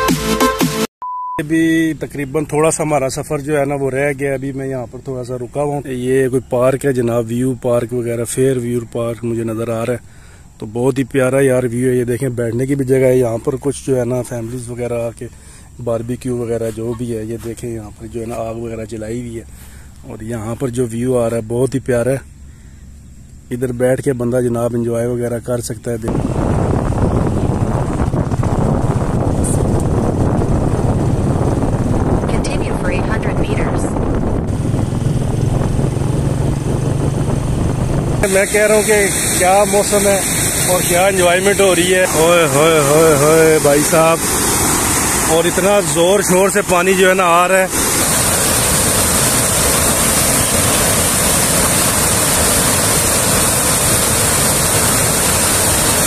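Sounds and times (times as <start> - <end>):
wind buffeting microphone: 26.0 - 46.7, 47.6 - 56.0
fast-flowing water roaring: 36.1 - 56.0.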